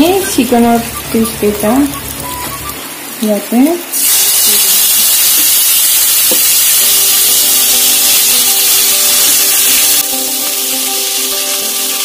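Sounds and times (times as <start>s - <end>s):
background music: 0.0s - 2.9s, 10.0s - 12.0s
chicken sizzling in hot oil: 0.8s - 12.0s.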